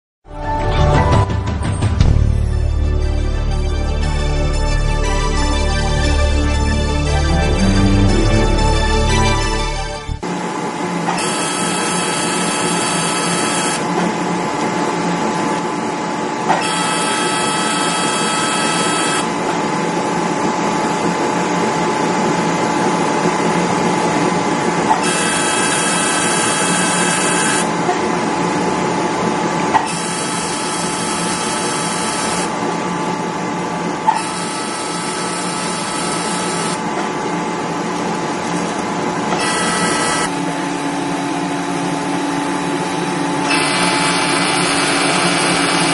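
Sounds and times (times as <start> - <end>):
laser machine humming: 10.2 - 14.0, 16.5 - 19.4, 24.9 - 27.8, 29.8 - 37.5, 38.5 - 45.9
high buzzing tone: 11.1 - 13.9, 16.6 - 19.3, 25.0 - 27.7, 29.9 - 32.5, 34.2 - 36.8, 39.3 - 45.9.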